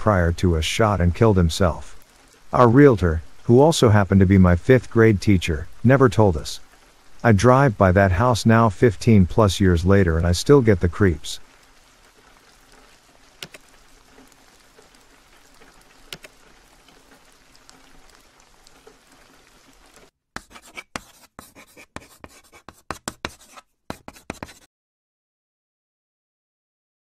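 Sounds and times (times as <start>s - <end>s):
faint steady rain: 0.0s - 24.6s
chalk scratching on blackboard: 20.4s - 24.7s.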